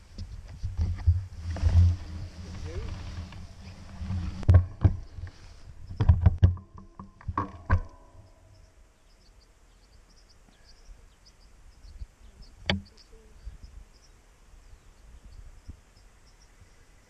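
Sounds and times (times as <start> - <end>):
creak: 1.0 - 8.3
knocks: 6.0 - 8.3.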